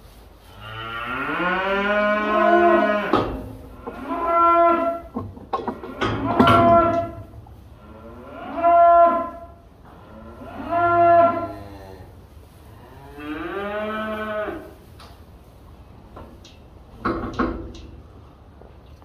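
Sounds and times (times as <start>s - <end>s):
cattle mooing: 0.8s - 3.2s, 7.8s - 9.5s, 10.1s - 12.1s.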